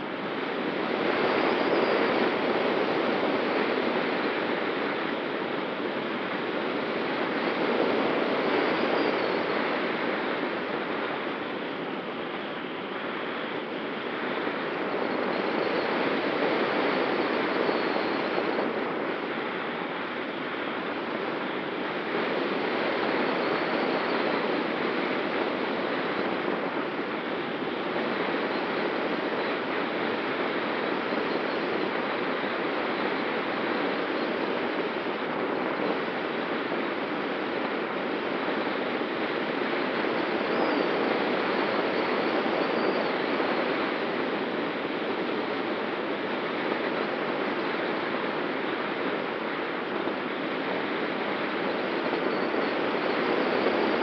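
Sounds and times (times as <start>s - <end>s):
faint steady whistle: 7.4s - 9.5s, 40.0s - 44.0s.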